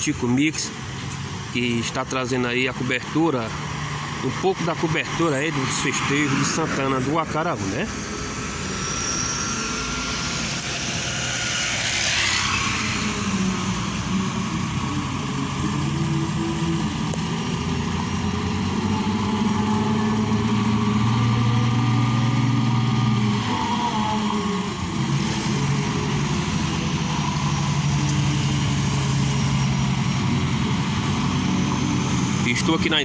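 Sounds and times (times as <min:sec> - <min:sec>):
cars and motorbikes passing: 0:00.0 - 0:33.0
low engine hum: 0:00.0 - 0:33.0
car rushing past: 0:03.7 - 0:14.8.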